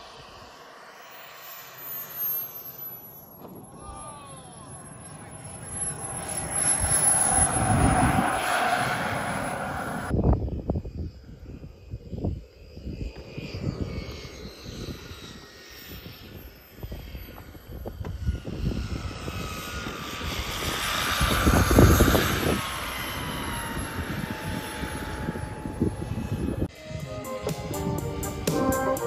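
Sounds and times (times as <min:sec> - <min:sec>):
model airplane motor whining: 0:00.0 - 0:26.8
wind buffeting microphone: 0:05.1 - 0:27.0.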